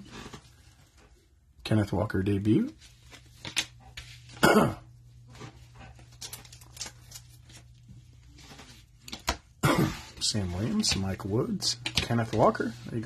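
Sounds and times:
person coughing: 4.4s - 4.9s, 9.6s - 10.2s
cards being shuffled: 5.3s - 9.4s.

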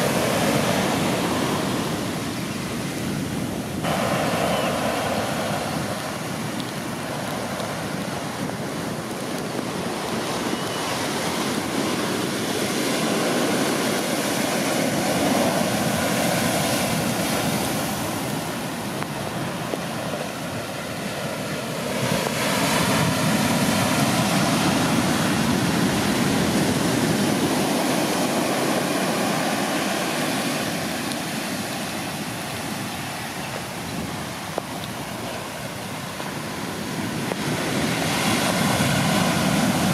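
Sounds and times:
waves breaking on beach: 0.0s - 39.9s.

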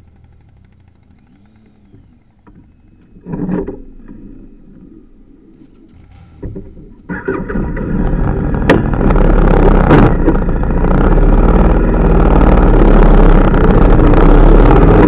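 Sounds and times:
motorcycle engine idling: 0.0s - 3.2s
vehicles passing: 0.0s - 15.0s.

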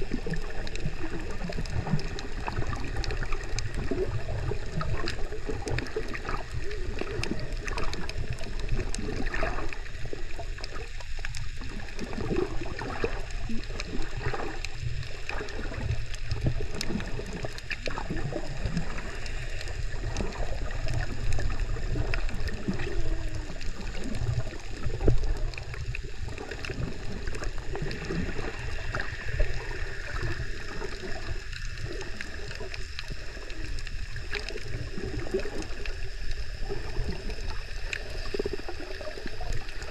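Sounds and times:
gurgling water movement: 0.0s - 39.9s
underwater low rumble: 0.0s - 39.9s
small scattered clicks: 4.7s - 12.3s, 12.9s - 36.6s.

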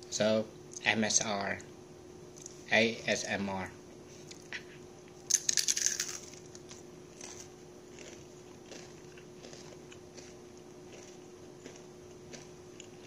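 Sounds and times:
crispy chicken skin crunching: 5.3s - 13.0s
faint chewing clicks: 6.6s - 13.0s.

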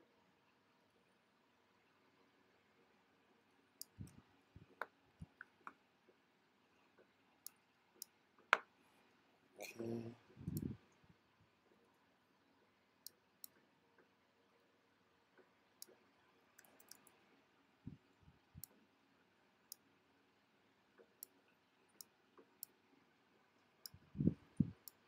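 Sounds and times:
computer mouse clicks: 10.5s - 10.8s, 16.6s - 17.2s.

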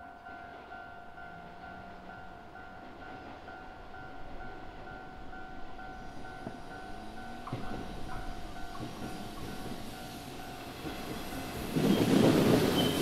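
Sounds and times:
electric trains rumbling: 0.0s - 13.0s.

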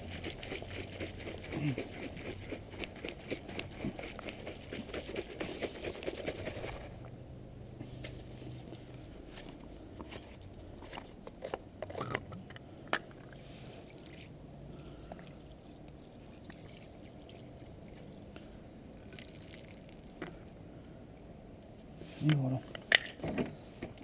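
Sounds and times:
water sloshing: 13.8s - 18.3s.

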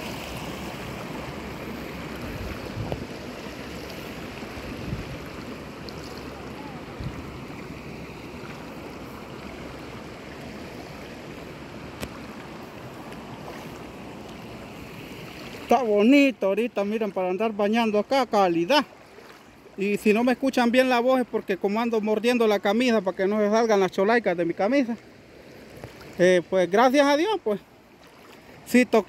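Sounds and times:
water splashing around wading legs: 0.0s - 15.8s, 18.8s - 19.9s, 24.8s - 26.3s, 27.8s - 28.7s
stream rushing: 0.0s - 29.0s.

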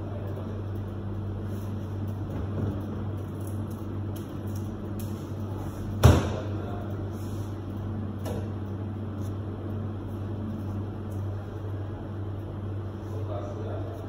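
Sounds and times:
kitchen equipment humming: 0.0s - 14.0s.

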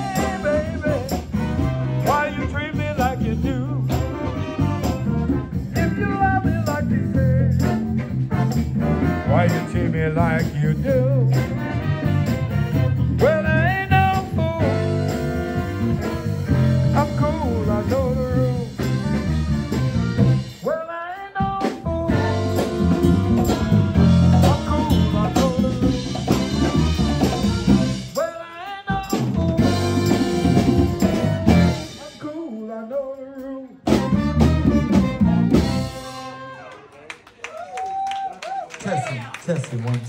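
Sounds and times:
lead singer singing: 0.0s - 4.6s, 20.6s - 26.7s
live band playing: 0.0s - 36.9s.

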